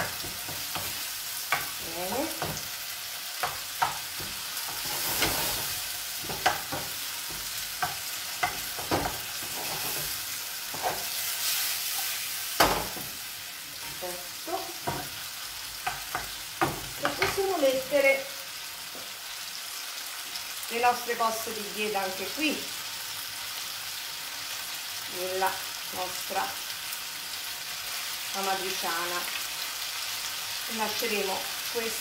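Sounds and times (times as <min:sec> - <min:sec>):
wooden spoon tapping pan: 0:00.0 - 0:02.7, 0:06.2 - 0:09.2, 0:15.8 - 0:17.5
food sizzling in a frying pan: 0:00.0 - 0:32.0.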